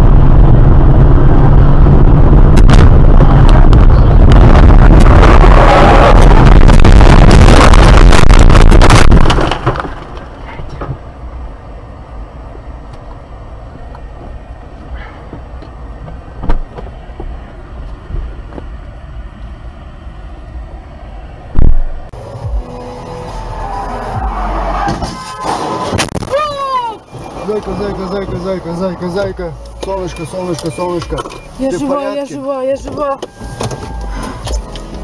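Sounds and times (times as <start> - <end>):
car crashing and scraping: 7.4 - 11.0, 23.6 - 28.1
loud thump: 21.6 - 21.9.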